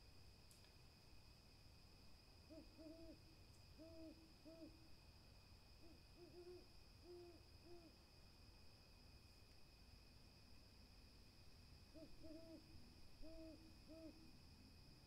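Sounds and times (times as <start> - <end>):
faint high-pitched whine: 0.0 - 15.0
owl hooting: 2.5 - 4.8, 5.8 - 7.9, 11.9 - 14.3.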